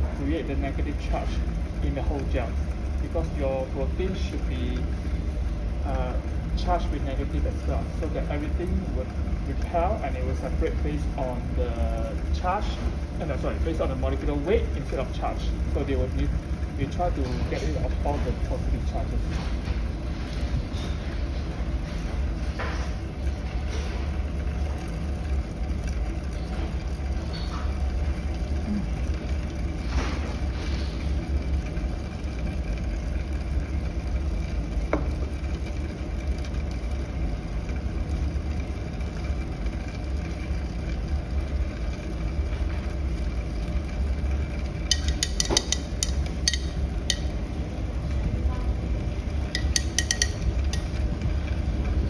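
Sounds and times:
laboratory equipment humming: 0.0s - 52.0s
glassware clinking: 44.9s - 47.3s, 49.5s - 51.0s.

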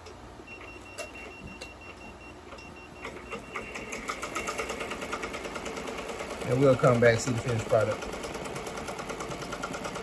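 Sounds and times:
embroidery machine needles ticking: 3.1s - 10.0s.

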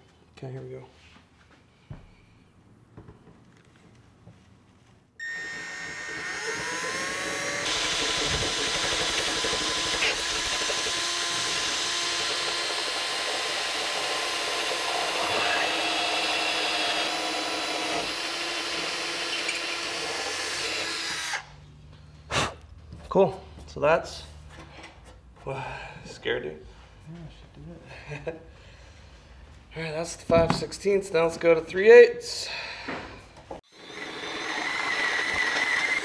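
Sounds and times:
cordless drill boring through metal: 5.2s - 21.5s, 33.7s - 36.0s.

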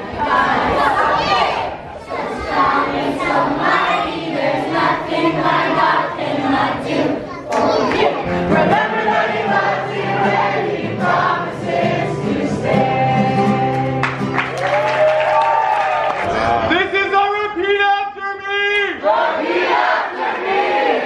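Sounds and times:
children's choir singing: 0.0s - 14.2s, 19.0s - 21.0s.

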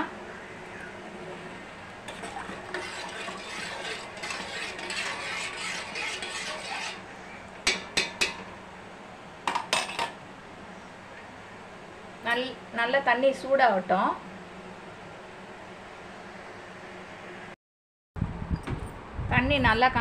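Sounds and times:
spoon scraping in metal pot: 2.0s - 7.1s.

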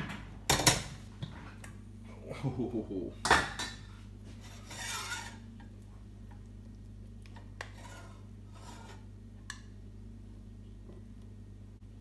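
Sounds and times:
steady low hum: 0.0s - 12.0s
metal spoon scraping a pot: 4.4s - 5.5s, 7.6s - 9.1s.

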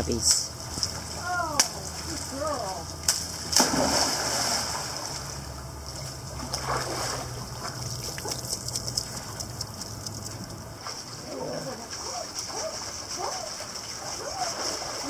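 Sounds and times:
water sloshing and lapping: 0.5s - 15.0s
dog splashing into water: 3.1s - 5.3s.

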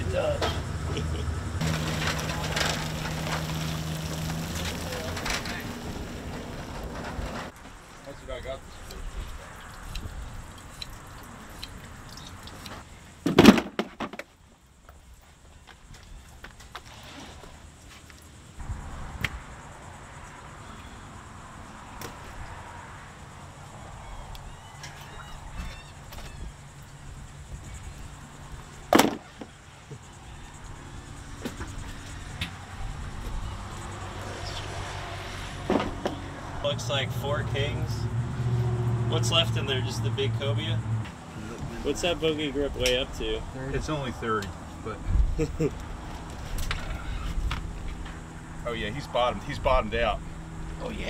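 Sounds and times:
small knocks in cooler: 13.2s - 14.3s, 28.9s - 29.5s, 35.7s - 36.2s
fish thudding into plastic cooler: 28.9s - 29.5s.

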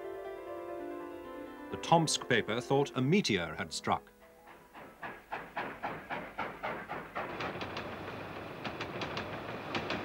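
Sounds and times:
train rolling rumble: 4.2s - 10.0s
steam locomotive chuffing: 4.3s - 10.0s
wheel clicks over rail joints: 4.4s - 10.0s.

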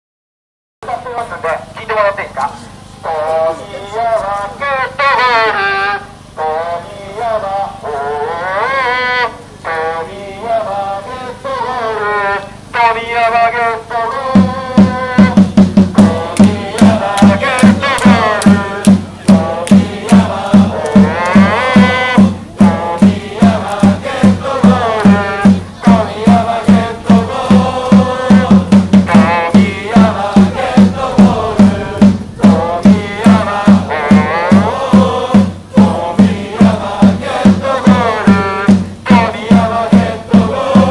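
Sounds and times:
football supporters chanting: 3.1s - 40.9s
steady drum beat: 14.2s - 40.9s.

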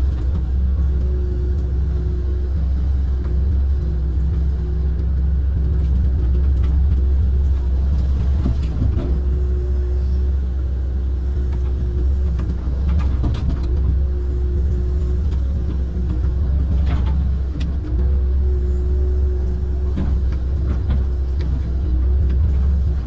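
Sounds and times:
excavator diesel engine running: 0.0s - 23.0s
hydraulic hum: 0.0s - 23.0s.

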